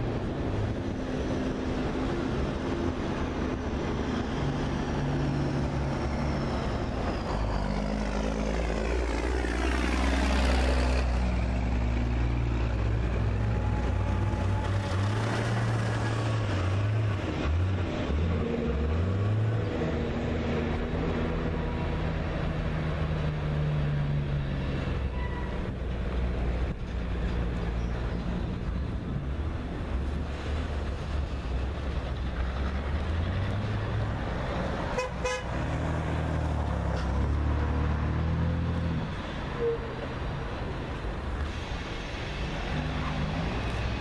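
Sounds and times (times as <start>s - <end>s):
diesel locomotive engine drone: 0.0s - 44.0s
train wheels on rail: 24.3s - 37.6s, 39.0s - 44.0s.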